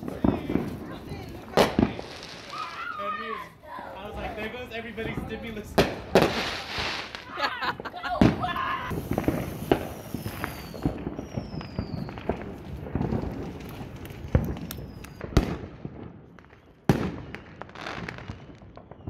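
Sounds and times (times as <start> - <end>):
sharp firework bangs: 0.0 - 3.0, 5.1 - 16.2
fireworks crackling and popping: 0.0 - 19.0
faint falling whistles: 10.1 - 12.2.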